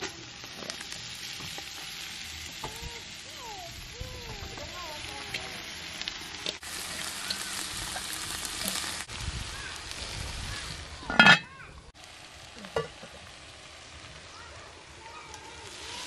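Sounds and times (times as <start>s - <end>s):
greens sizzling in a pot: 0.0s - 16.0s
metal pot clanging: 11.0s - 11.5s, 12.7s - 13.1s.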